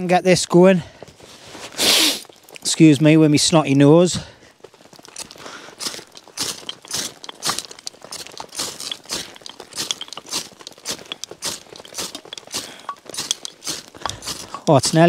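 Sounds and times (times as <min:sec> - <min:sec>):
fire steel scraping: 0:04.8 - 0:15.0.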